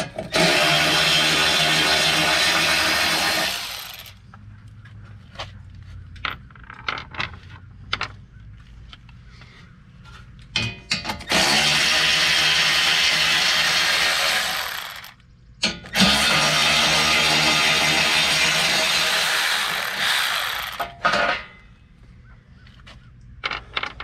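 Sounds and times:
cordless electric ratchet running: 11.3 - 15.2.

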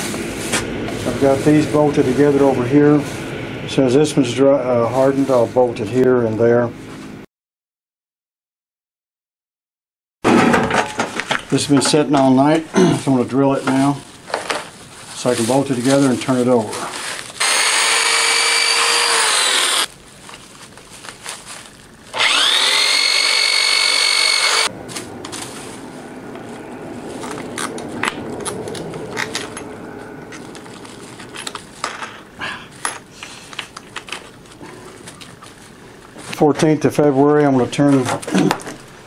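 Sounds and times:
plastic sheeting rustling: 0.0 - 3.2, 12.3 - 17.4, 19.8 - 22.2, 24.7 - 28.0, 30.4 - 31.8
electric drill whining: 17.4 - 19.9, 22.1 - 24.7.

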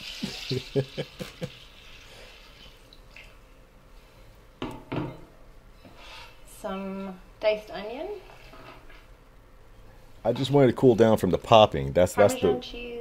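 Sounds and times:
person chuckling: 0.1 - 1.6.

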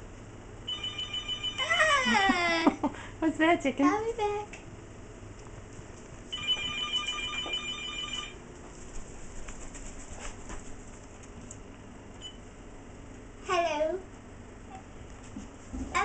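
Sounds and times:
cordless telephone ringing: 0.7 - 1.6, 6.3 - 8.4.

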